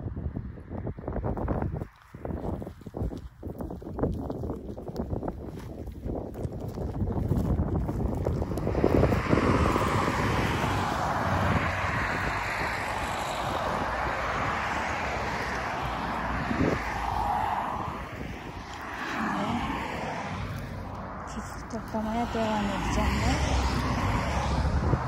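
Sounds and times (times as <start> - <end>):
wind buffeting microphone: 0.0 - 25.0
cars passing: 7.7 - 25.0.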